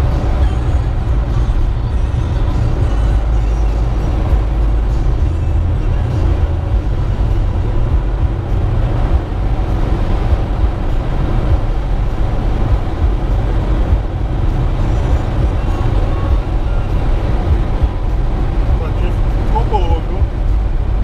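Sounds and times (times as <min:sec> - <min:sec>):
car driving rumble from inside: 0:00.0 - 0:21.0.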